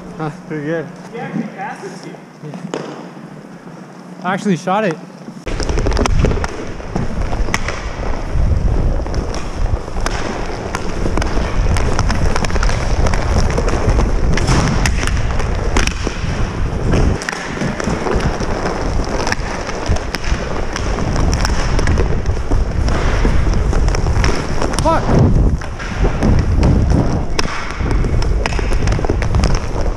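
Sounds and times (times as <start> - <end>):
skates rushing on ice: 0.6 - 29.9
hockey sticks clacking on puck: 9.1 - 25.0, 25.6 - 29.9.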